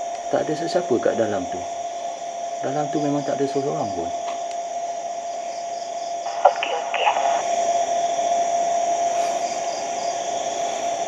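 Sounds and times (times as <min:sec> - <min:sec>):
steady hiss: 0:06.3 - 0:11.0.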